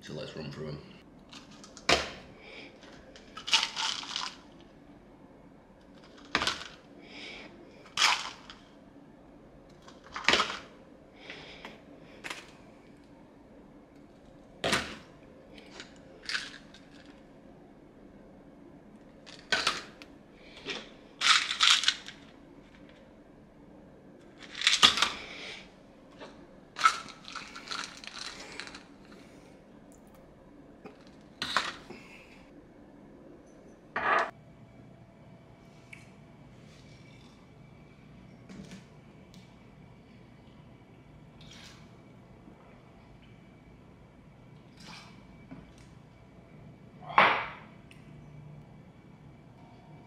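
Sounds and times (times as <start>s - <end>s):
tablets rattling in plastic tubs: 3.3s - 4.5s, 21.2s - 22.3s, 26.8s - 28.9s
soft shaking of tablets: 26.8s - 29.1s.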